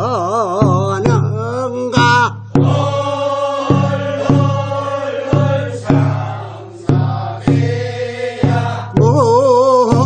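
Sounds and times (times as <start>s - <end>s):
barrel drum beat: 0.0s - 10.0s
group chanting work song: 2.5s - 9.2s.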